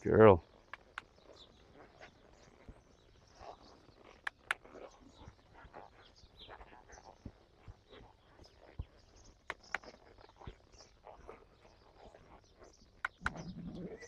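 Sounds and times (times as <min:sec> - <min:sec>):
horse walking: 0:00.0 - 0:14.0
faint bird chirps: 0:00.4 - 0:14.0
sharp clicks: 0:00.7 - 0:01.2, 0:04.2 - 0:04.7, 0:09.5 - 0:10.0, 0:13.0 - 0:13.8.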